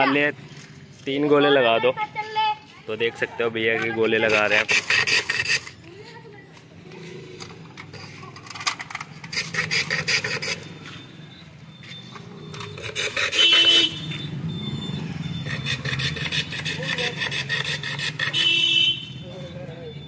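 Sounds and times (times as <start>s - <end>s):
ice shaving rasping strokes: 4.2s - 5.9s, 9.2s - 10.8s, 12.5s - 14.0s, 15.4s - 18.7s.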